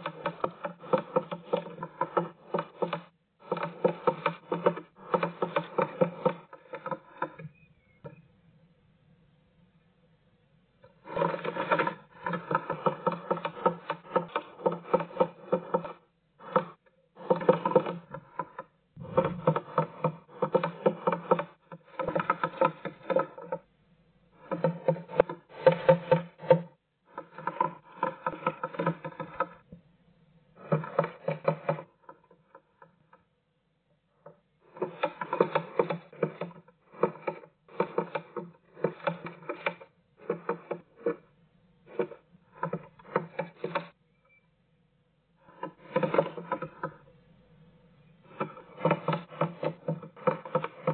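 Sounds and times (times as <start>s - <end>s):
bird pecking wood in nest box: 27.2s - 29.5s, 41.9s - 43.9s, 48.2s - 50.9s.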